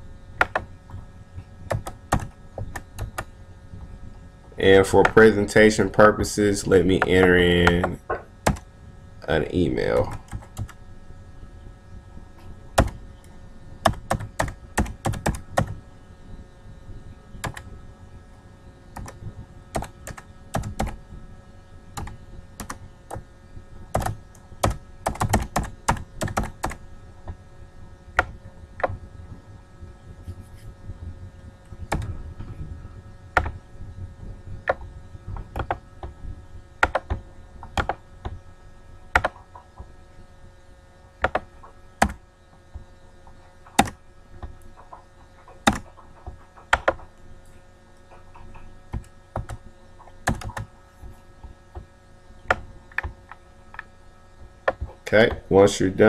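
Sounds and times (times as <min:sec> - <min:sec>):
faint steady hum: 0:00.0 - 0:56.0
computer keyboard typing: 0:00.4 - 0:00.6, 0:01.7 - 0:03.3, 0:07.0 - 0:08.6, 0:10.0 - 0:10.8, 0:12.8 - 0:13.0, 0:13.8 - 0:15.8, 0:17.4 - 0:17.6, 0:19.0 - 0:21.0, 0:22.0 - 0:23.2, 0:23.9 - 0:26.8, 0:31.9 - 0:32.1, 0:35.5 - 0:35.8, 0:36.8 - 0:38.0, 0:39.2 - 0:39.5, 0:41.2 - 0:42.2, 0:43.7 - 0:44.0, 0:44.8 - 0:47.1, 0:48.3 - 0:49.6, 0:50.2 - 0:50.7.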